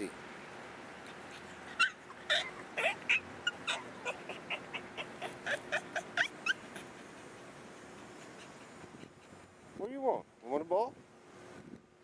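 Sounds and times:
dog whining and yipping: 1.3s - 7.1s.

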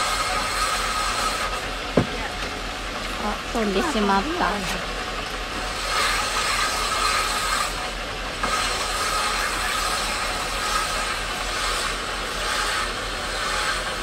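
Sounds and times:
stone grinding on wet wheel: 0.0s - 1.7s, 3.0s - 14.0s
low motor hum: 0.0s - 14.0s.

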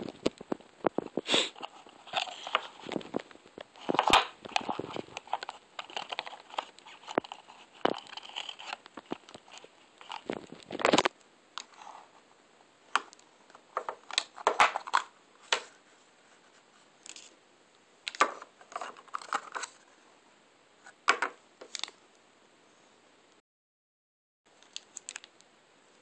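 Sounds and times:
plastic and card packaging handled: 0.0s - 12.2s, 13.0s - 17.4s, 18.0s - 20.0s, 20.8s - 22.0s, 24.6s - 25.4s.

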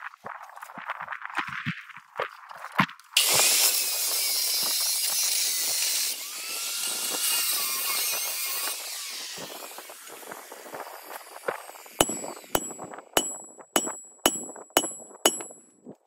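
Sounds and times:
angle grinder grinding steel: 3.2s - 15.6s.

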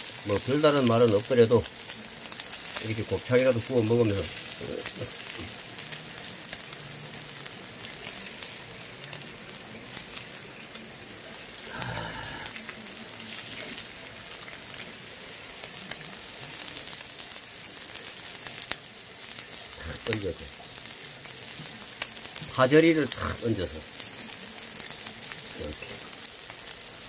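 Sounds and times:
small pops of frying: 0.0s - 11.8s, 12.4s - 27.0s
meat sizzling on a griddle: 0.0s - 27.0s.

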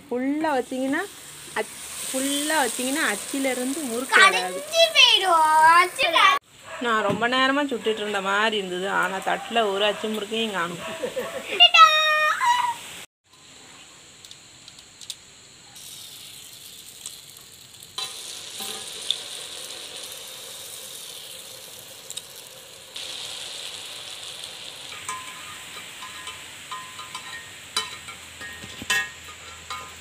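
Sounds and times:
batter sizzling in hot oil: 0.0s - 6.4s, 15.7s - 30.0s.

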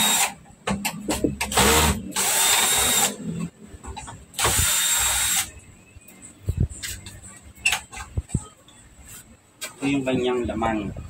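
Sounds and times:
cordless drill running: 0.0s - 0.3s, 1.6s - 3.1s, 4.4s - 5.5s.

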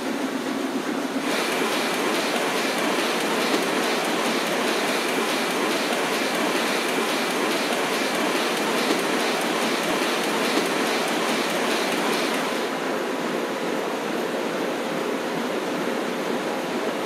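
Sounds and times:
printing machinery clattering: 1.2s - 12.9s.

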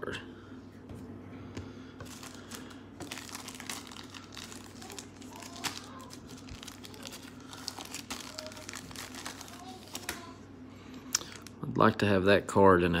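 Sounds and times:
trading cards rustling: 2.0s - 10.4s.

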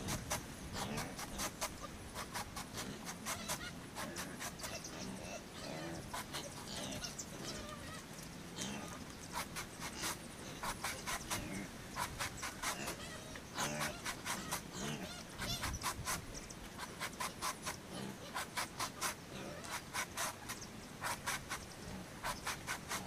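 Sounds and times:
knife chopping banana trunk: 22.2s - 23.0s.

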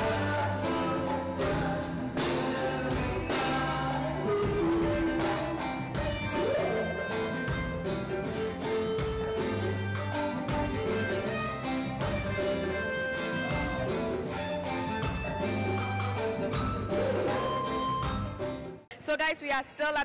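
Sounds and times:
man singing: 0.0s - 8.0s, 16.1s - 17.9s
drum kit: 0.0s - 18.9s
guitar: 0.0s - 18.9s
hand drum: 7.4s - 18.4s.

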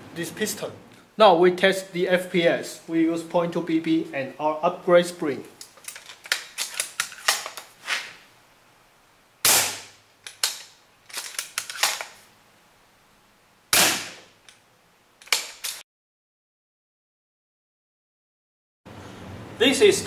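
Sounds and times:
rifle bolt clicks and clacks: 5.6s - 7.7s, 10.2s - 12.2s, 15.2s - 15.8s
airsoft rifle shots: 9.4s - 10.0s, 13.7s - 14.3s.

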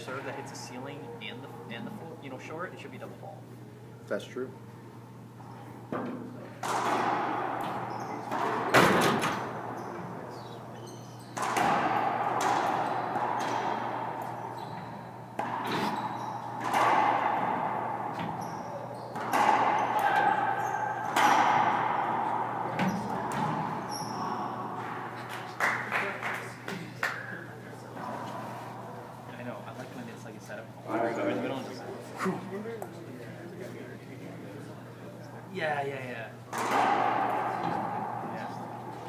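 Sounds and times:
racquetball pops echoing: 6.2s - 10.5s, 11.3s - 27.3s, 36.5s - 39.0s.

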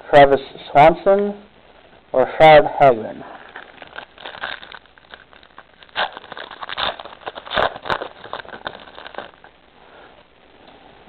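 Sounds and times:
foil wrapper crinkling and tearing: 3.4s - 9.5s.

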